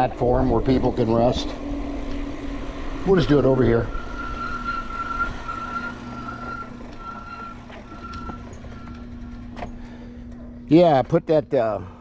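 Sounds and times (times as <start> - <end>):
bike brakes squealing: 3.6 - 9.8.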